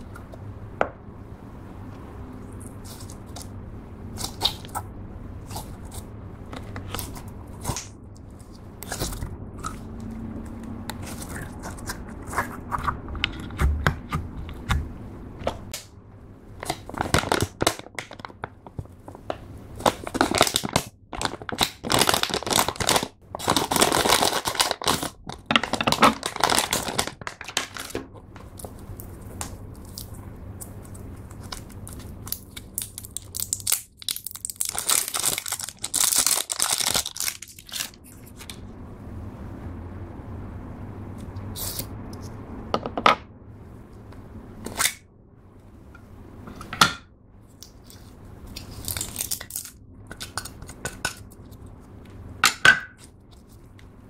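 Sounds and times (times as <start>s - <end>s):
plastic packet crinkling: 19.8s - 28.0s, 31.4s - 38.4s, 48.5s - 50.8s.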